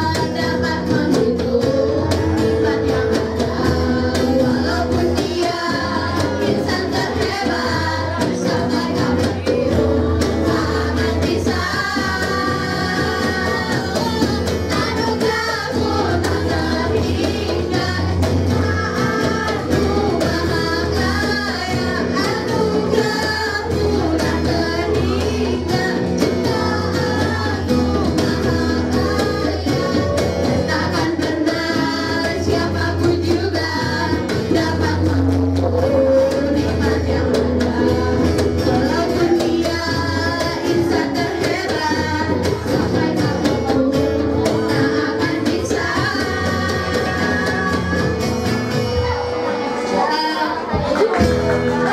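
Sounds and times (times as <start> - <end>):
cajon drumming: 0.0 - 51.9
electric and acoustic guitars: 0.0 - 51.9
girls singing together: 0.0 - 51.9.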